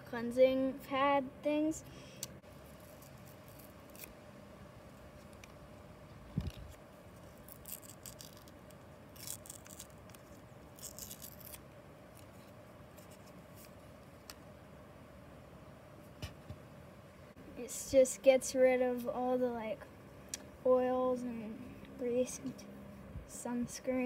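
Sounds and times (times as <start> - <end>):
foil packet crinkling: 6.4 - 11.6.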